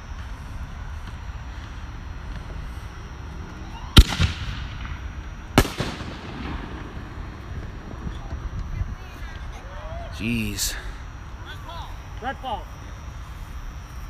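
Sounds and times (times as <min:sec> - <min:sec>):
fireworks bangs with echo: 0:03.9 - 0:08.6.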